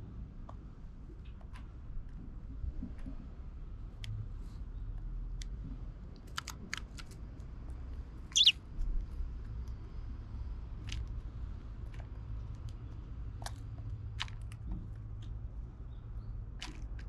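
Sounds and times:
sparrow chirp: 8.3 - 8.6
beaks pecking at seeds: 8.4 - 8.6.

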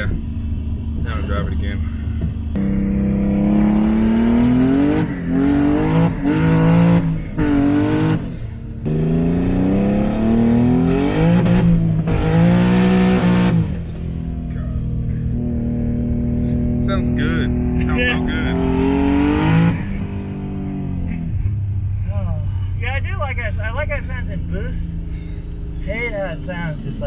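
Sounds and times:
car engine revving hard: 2.6 - 13.9, 15.3 - 21.1.

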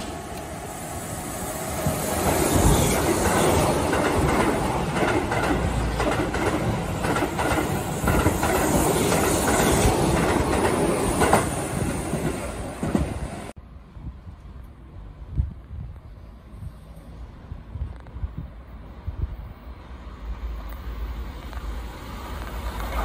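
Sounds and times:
electric train passing: 0.0 - 23.0.

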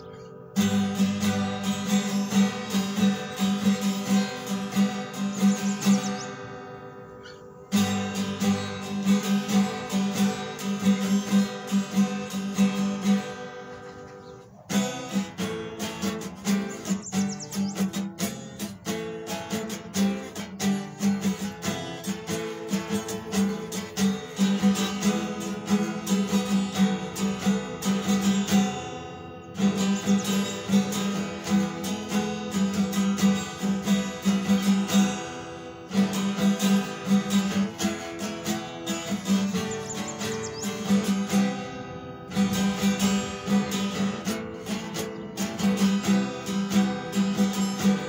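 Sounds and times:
acoustic guitar strumming: 0.0 - 48.0.

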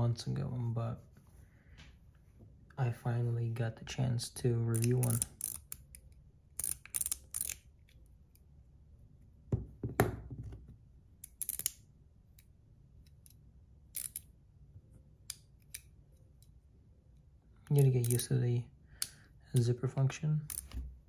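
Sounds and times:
metal fidget toy clicking: 4.8 - 7.6, 11.2 - 11.8, 14.0 - 14.3, 17.7 - 18.3.

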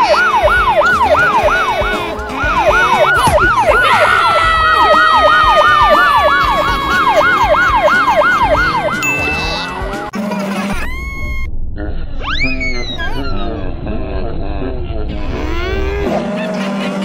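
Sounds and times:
long falling tone: 0.0 - 10.1, 10.8 - 15.8
siren wailing rapidly: 0.0 - 10.1.

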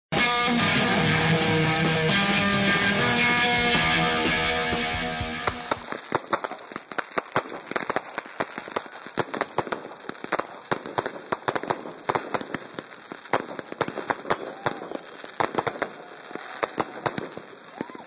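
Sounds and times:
guitar music: 0.1 - 5.8
fireworks crackling: 0.1 - 18.0.

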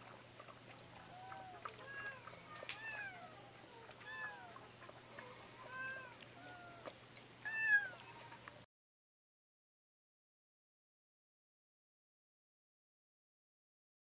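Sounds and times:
cat meowing: 1.1 - 4.7, 5.6 - 8.3.

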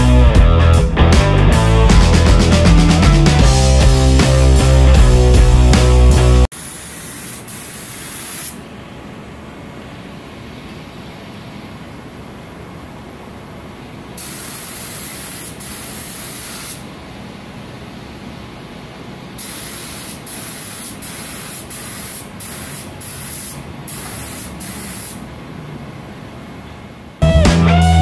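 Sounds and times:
paint spray gun hissing: 6.5 - 8.6, 14.2 - 16.9, 19.4 - 25.3.

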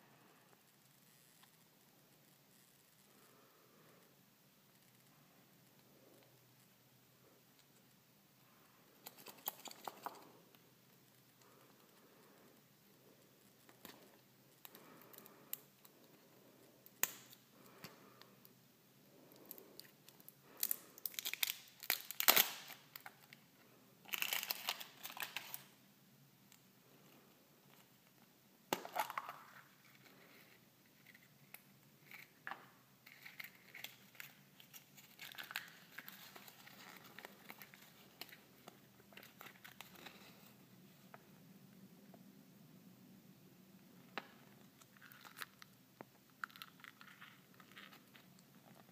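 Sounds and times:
plastic wrapper crinkling and tearing: 9.0 - 10.4, 19.4 - 23.4, 24.0 - 25.8, 28.7 - 40.5, 44.2 - 48.9.

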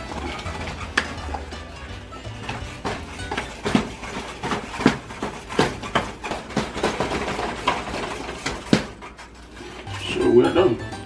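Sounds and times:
wooden spoon knocking a pot: 0.0 - 9.3.

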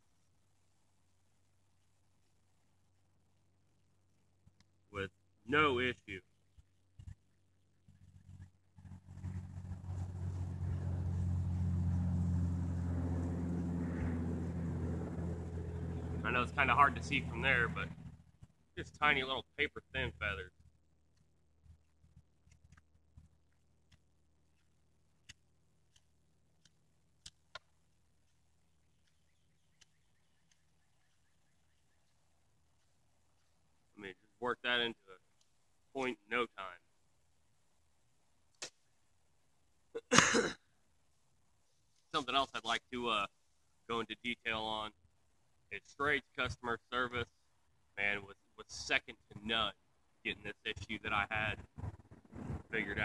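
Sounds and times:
engine running steadily: 8.0 - 20.5
knife shaving wooden stick: 21.1 - 30.8
faint bird chirps: 28.2 - 33.5.

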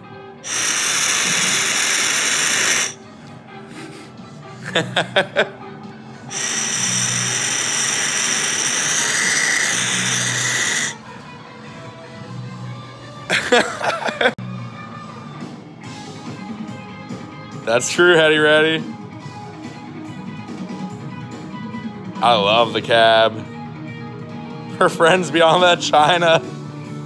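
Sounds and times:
airy hiss of air drawn through glass: 0.4 - 3.0, 6.3 - 11.0.

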